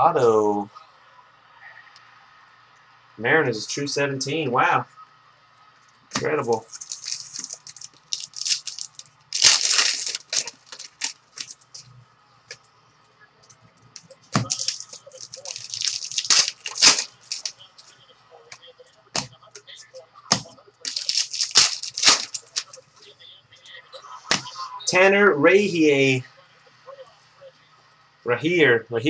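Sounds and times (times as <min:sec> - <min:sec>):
cards clicking and rustling: 0:06.1 - 0:11.9, 0:14.0 - 0:17.5, 0:20.3 - 0:22.8
card pack wrappers crinkling and tearing: 0:06.2 - 0:11.9, 0:14.0 - 0:17.5, 0:20.8 - 0:22.8.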